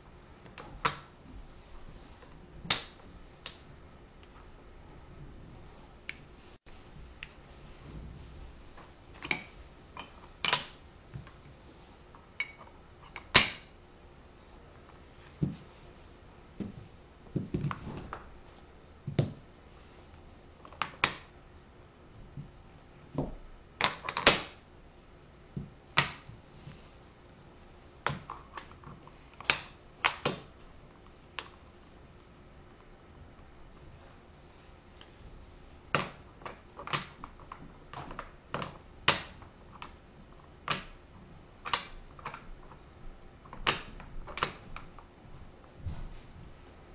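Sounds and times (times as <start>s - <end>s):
wooden blocks clicking together: 41.6s - 42.9s, 43.5s - 45.0s.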